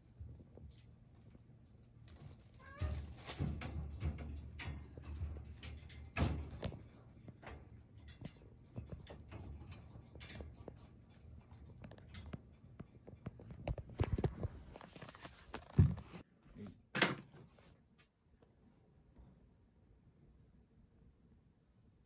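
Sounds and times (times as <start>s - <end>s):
wire cage clicking and knocking: 0.2s - 14.6s
plastic bags and cardboard rustling: 13.4s - 16.2s.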